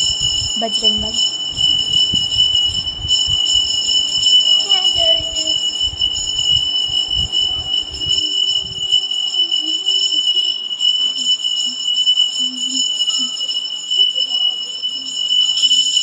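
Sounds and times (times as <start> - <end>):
low rumbling bumps: 0.0 - 8.9
high-pitched ringing tone: 0.0 - 16.0.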